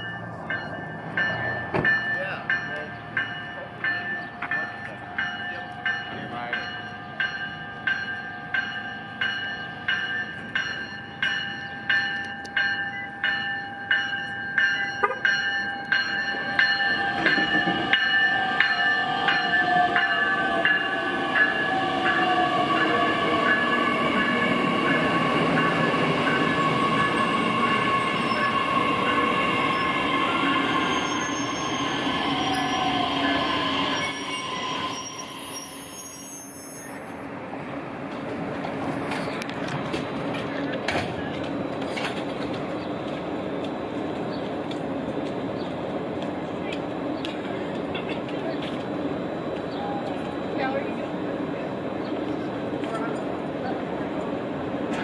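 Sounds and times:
warning bell ringing: 0:00.0 - 0:35.2
train rumble: 0:00.0 - 0:36.0, 0:37.0 - 0:55.0
high wheel squeal: 0:16.8 - 0:37.2.

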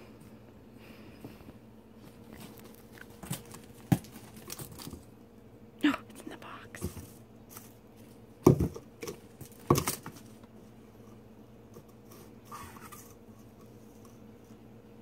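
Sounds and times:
sharp knocks on cardboard box: 0:08.4 - 0:08.8.

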